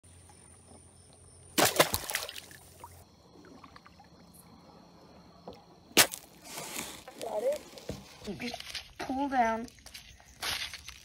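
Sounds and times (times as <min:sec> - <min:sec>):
splashing and scuffling: 0:01.6 - 0:03.0, 0:06.0 - 0:11.0.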